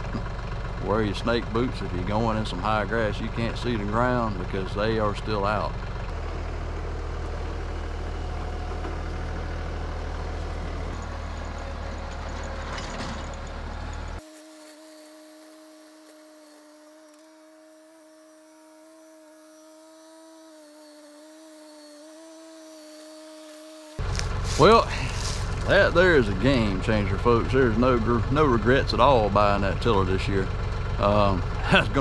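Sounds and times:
tractor tiller rumbling: 0:00.0 - 0:14.2, 0:24.0 - 0:32.0
tractor engine humming: 0:00.0 - 0:19.4, 0:21.2 - 0:32.0.

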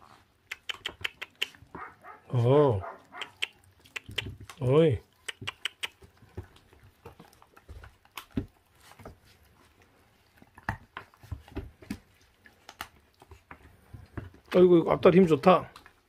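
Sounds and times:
puppies chewing on bones: 0:00.0 - 0:16.0
paws scrabbling on plastic: 0:01.0 - 0:02.2, 0:05.2 - 0:16.0.

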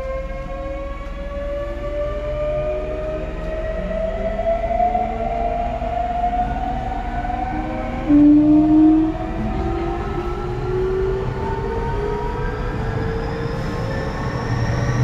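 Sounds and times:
train car rumble: 0:00.0 - 0:15.0
train inverter whine rising: 0:00.0 - 0:15.0.

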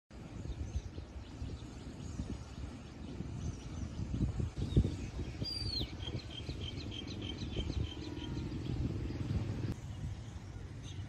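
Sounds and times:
steady low rumble: 0:00.1 - 0:11.0
bird whistling: 0:04.6 - 0:08.8.

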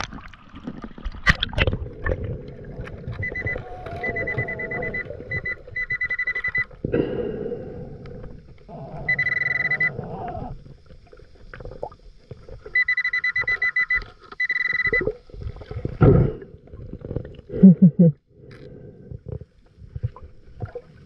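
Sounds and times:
underwater bubbling and sloshing: 0:00.0 - 0:21.0
metal detector high-pitched beeps: 0:03.2 - 0:06.7, 0:09.1 - 0:10.0, 0:12.8 - 0:15.1.

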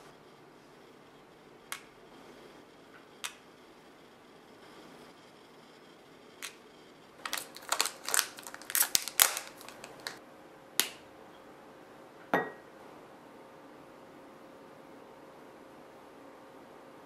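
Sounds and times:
chocolate bar snapping: 0:07.2 - 0:10.2, 0:10.8 - 0:11.0.

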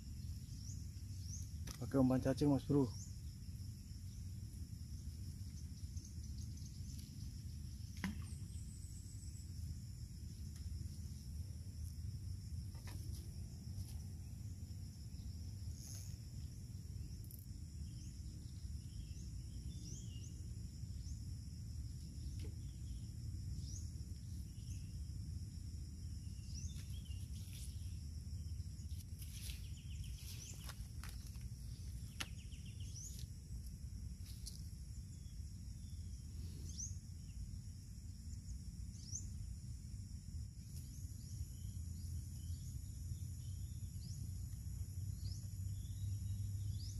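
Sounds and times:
high insect drone: 0:00.0 - 0:46.9
bird chirps: 0:17.0 - 0:21.2, 0:26.2 - 0:33.3.

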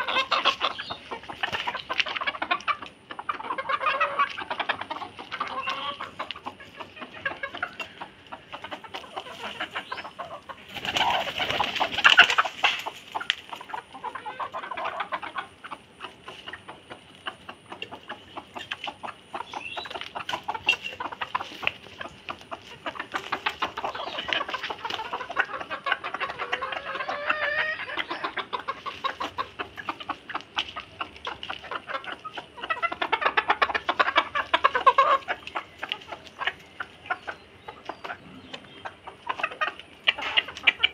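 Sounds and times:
hens clucking: 0:00.0 - 0:40.9
wings flapping: 0:10.6 - 0:12.9.

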